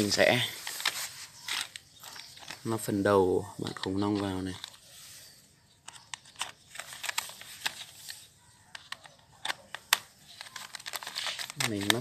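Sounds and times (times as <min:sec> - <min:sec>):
plastic toy parts clicking: 0:05.8 - 0:12.0.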